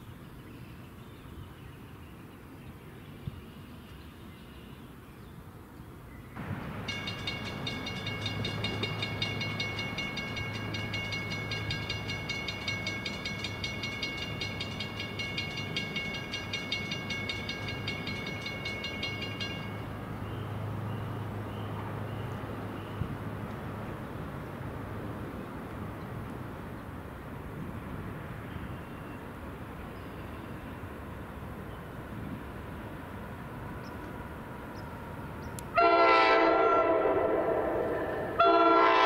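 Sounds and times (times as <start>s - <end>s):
crossing warning bell ringing: 6.4s - 20.1s
electric locomotive hum: 6.4s - 39.0s.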